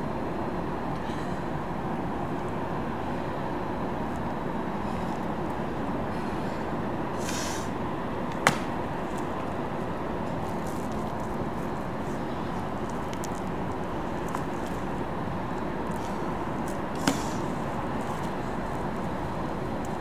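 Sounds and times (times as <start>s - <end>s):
outdoor background rumble: 0.0s - 20.0s
sharp tap: 8.4s - 8.7s.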